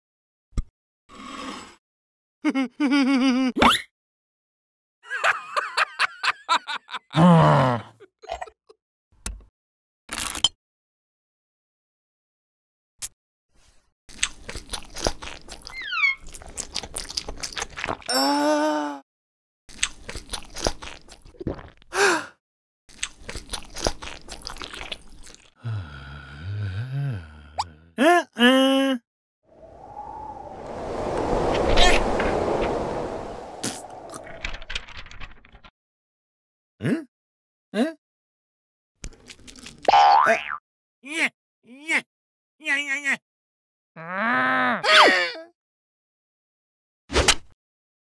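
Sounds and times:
crunchy chewing: 22.9s - 25.5s.

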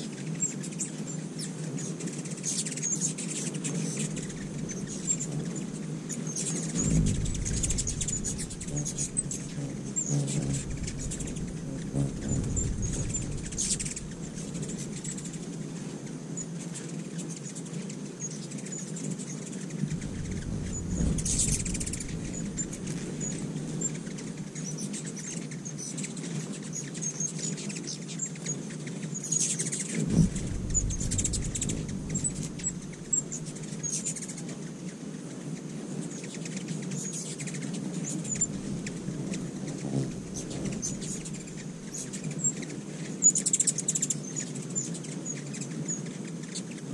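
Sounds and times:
low hum: 4.0s - 5.6s, 6.6s - 15.6s, 19.8s - 24.5s, 30.0s - 34.0s, 38.4s - 42.2s
hummingbird chip calls: 6.8s - 15.3s, 39.8s - 42.0s
low thump: 6.8s - 15.4s, 19.8s - 24.2s, 30.0s - 33.8s, 40.0s - 41.9s.

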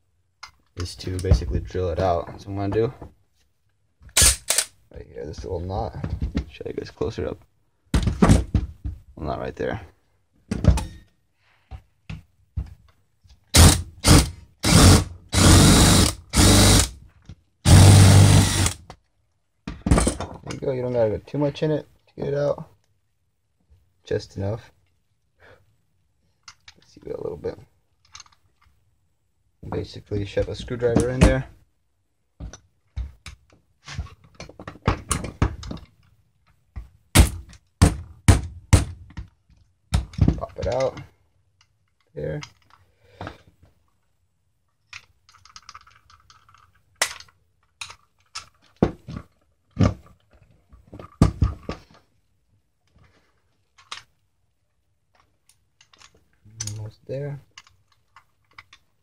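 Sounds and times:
cordless drill drilling metal: 13.6s - 16.9s, 17.7s - 18.8s.

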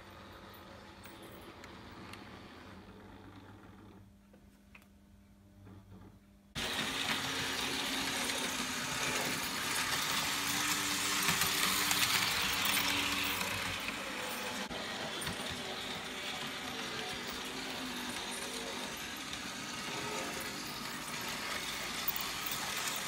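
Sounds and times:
model train wheels clattering: 6.8s - 23.0s.

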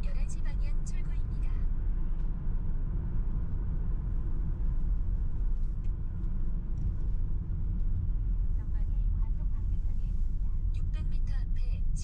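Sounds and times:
car engine and tyre rumble: 0.0s - 12.0s.

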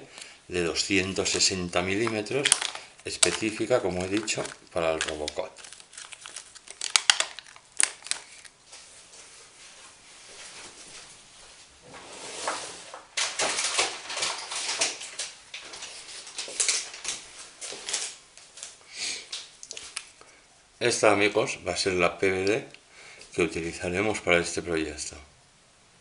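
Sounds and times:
plastic bags crinkling: 0.8s - 8.6s, 12.9s - 20.1s.

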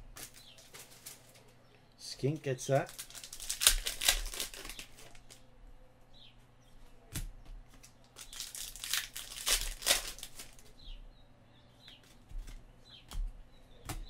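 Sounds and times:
trading cards rustling and snapping: 0.1s - 1.6s, 2.7s - 5.4s, 7.1s - 10.8s.

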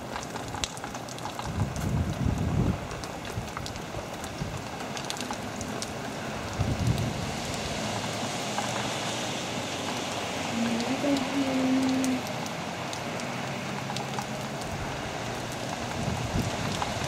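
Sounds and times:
raindrops tapping: 0.0s - 17.0s
steady rain falling: 0.0s - 17.0s
wind rumble on microphone: 0.4s - 9.2s, 14.6s - 17.0s.

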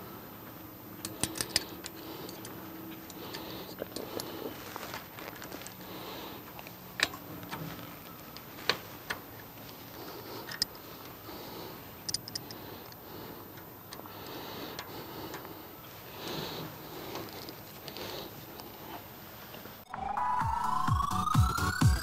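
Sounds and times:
sharp metal clicks: 1.0s - 4.4s, 12.0s - 15.5s.

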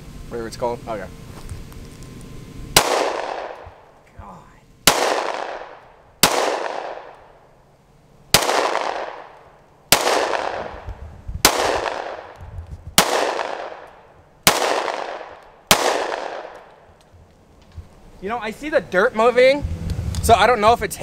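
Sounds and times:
gunshots with long echo: 2.7s - 3.9s, 4.8s - 7.5s, 8.3s - 12.4s, 13.0s - 16.9s.

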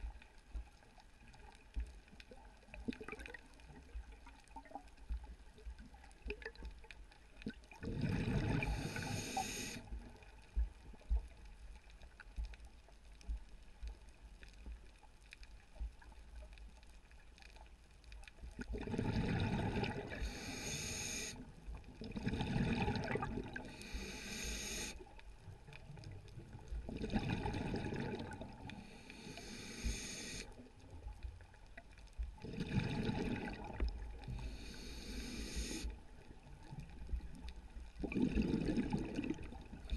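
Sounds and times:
exhaust bubbles gurgling: 7.8s - 10.0s, 18.6s - 21.2s, 22.0s - 23.8s, 26.7s - 28.7s, 32.4s - 34.7s, 37.9s - 39.9s
scuba diver breathing: 7.8s - 10.0s, 19.0s - 21.5s, 23.5s - 25.0s, 28.7s - 30.6s, 34.2s - 36.0s.

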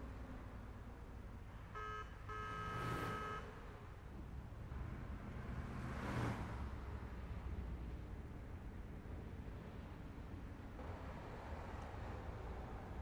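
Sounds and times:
vehicle horn tooting: 1.8s - 3.5s
distant harbor and traffic rumble: 3.5s - 13.0s.

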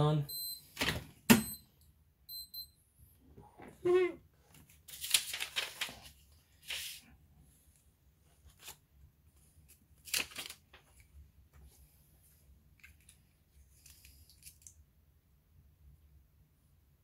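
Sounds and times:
paper rustling and crinkling: 4.4s - 7.1s, 8.3s - 11.2s.

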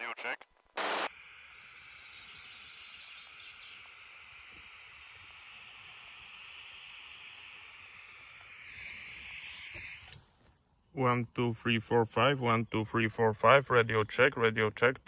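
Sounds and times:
faint steady hiss: 0.0s - 11.3s.

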